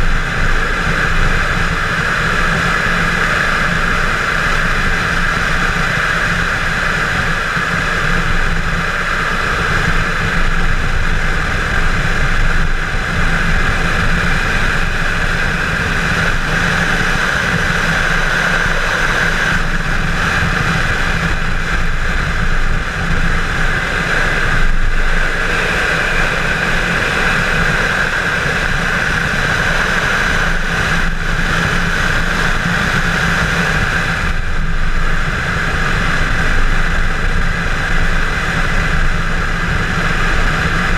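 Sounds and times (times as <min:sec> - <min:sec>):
car engine running hard: 0:00.0 - 0:40.9
rushing air: 0:00.0 - 0:40.9.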